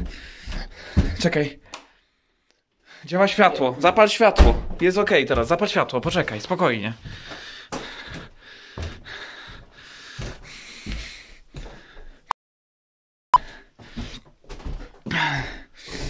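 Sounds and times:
footsteps on wooden floorboards: 0.0s - 1.4s, 5.3s - 6.3s, 6.9s - 12.2s, 13.8s - 15.1s.

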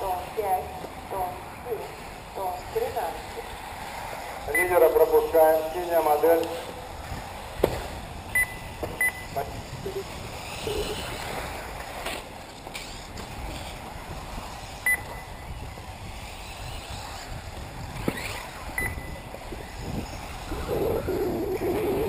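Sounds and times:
electric motors whining: 0.0s - 22.0s
short high beeps: 8.4s - 9.4s, 14.9s - 15.3s, 18.8s - 19.2s.

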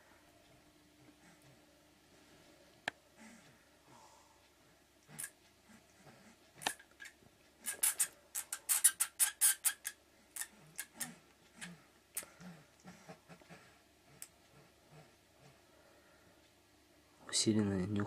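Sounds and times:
sharp scratching clicks: 6.6s - 12.3s.

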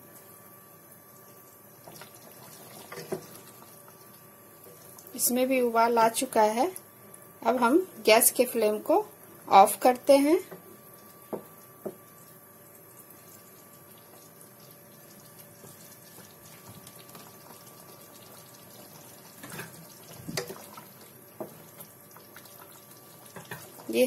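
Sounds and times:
thick gravy bubbling faintly: 10.6s - 24.0s.

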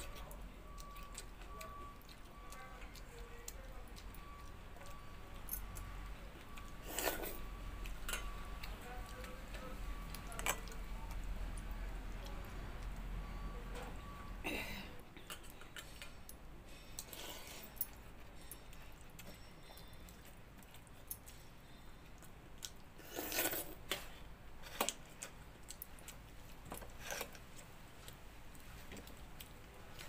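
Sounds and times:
small clicks and clinks: 4.2s - 7.4s.

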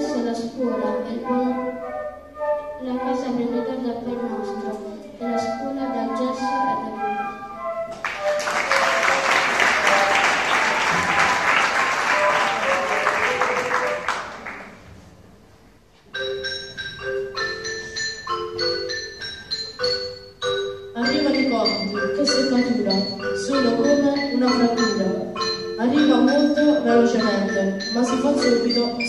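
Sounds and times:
mallet percussion tune: 5.3s - 14.2s, 16.1s - 29.0s
audience applause: 8.0s - 14.8s.

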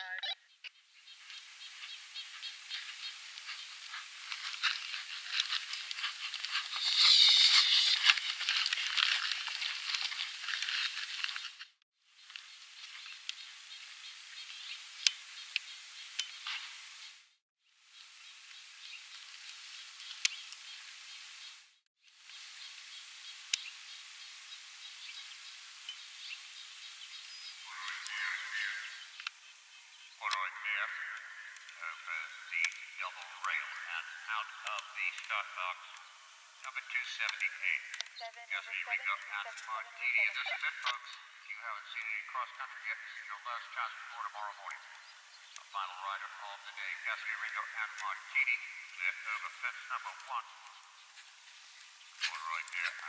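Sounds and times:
open-air background hiss: 0.5s - 9.4s, 10.3s - 53.0s
horse hooves galloping on dirt: 1.2s - 11.6s
distant voice: 27.7s - 29.0s, 30.2s - 36.0s, 36.7s - 44.9s, 45.6s - 50.6s, 52.2s - 53.0s.

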